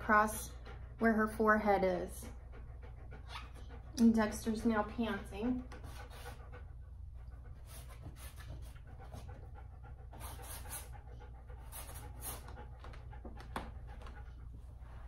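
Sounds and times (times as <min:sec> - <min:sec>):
dog panting: 0:00.0 - 0:15.0.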